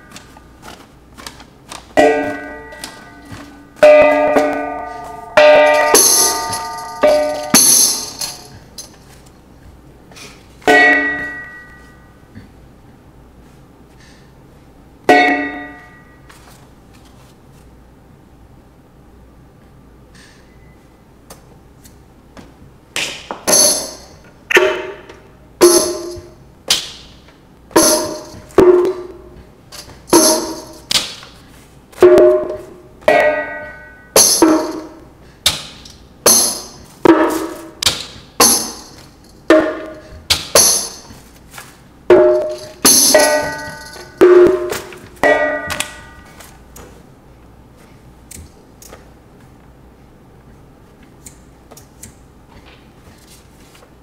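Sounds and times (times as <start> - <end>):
tambourine hits jingling: 5.8 - 9.0, 23.5 - 24.2, 25.6 - 26.3, 27.8 - 28.5, 29.8 - 30.9, 34.2 - 35.0, 36.3 - 36.9, 38.4 - 41.2, 42.2 - 44.3.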